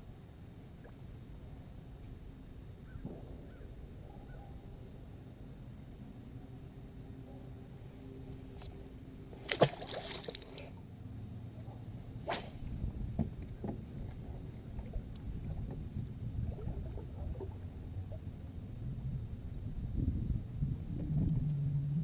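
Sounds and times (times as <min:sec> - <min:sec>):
water splashing: 0:09.4 - 0:10.7
wind rumble on microphone: 0:11.4 - 0:22.0.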